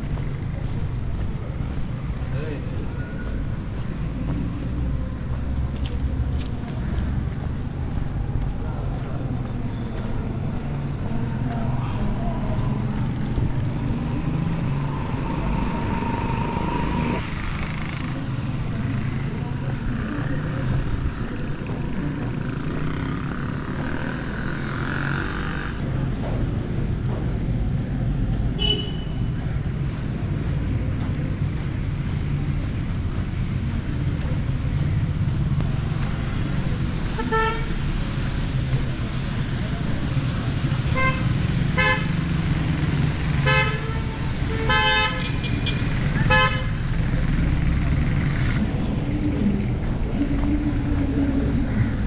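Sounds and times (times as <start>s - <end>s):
road and traffic noise: 0.0s - 52.0s
vehicle horn toot: 28.6s - 29.2s, 43.4s - 46.7s.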